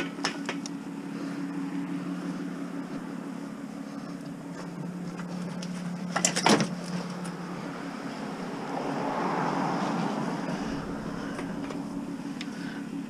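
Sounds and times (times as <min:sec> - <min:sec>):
steady low hum: 0:00.0 - 0:13.0
clatter of metal and plastic: 0:05.4 - 0:07.0.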